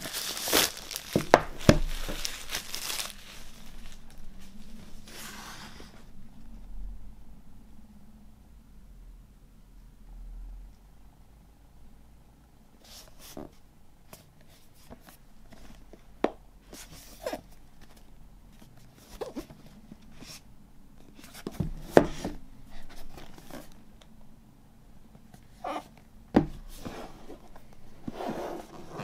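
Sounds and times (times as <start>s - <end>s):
cardboard rubbing and scraping: 0.0s - 6.1s, 26.6s - 29.0s.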